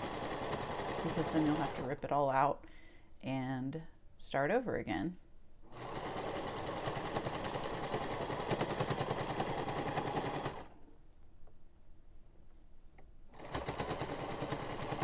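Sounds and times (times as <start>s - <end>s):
sewing machine stitching: 0.0s - 2.0s, 5.7s - 10.8s, 13.3s - 15.0s.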